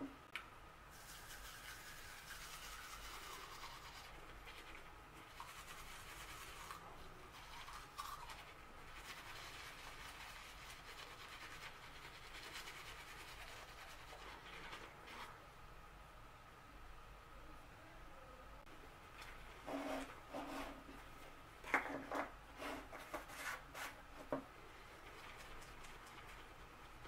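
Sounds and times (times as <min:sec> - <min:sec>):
toothbrush scrubbing teeth: 0:00.9 - 0:15.4.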